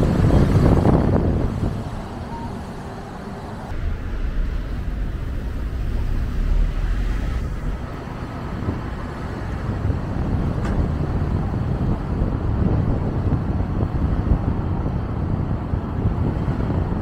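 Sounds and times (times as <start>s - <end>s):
car road noise rumble: 0.0s - 17.0s.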